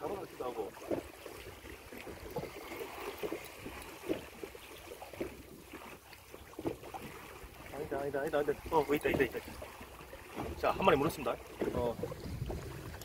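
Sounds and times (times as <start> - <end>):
sea wash: 0.0 - 13.0
water lapping against hull: 0.0 - 13.0
wind noise: 11.6 - 13.0.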